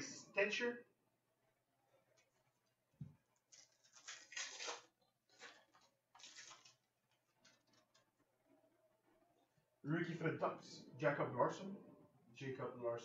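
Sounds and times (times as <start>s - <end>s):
trading cards rustling: 3.4s - 8.1s.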